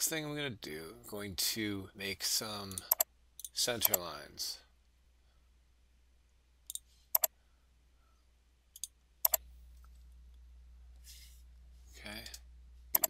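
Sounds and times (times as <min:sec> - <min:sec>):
low steady hum: 0:00.0 - 0:13.0
computer mouse clicking: 0:02.7 - 0:04.0, 0:06.7 - 0:07.3, 0:08.8 - 0:09.4, 0:12.2 - 0:13.0.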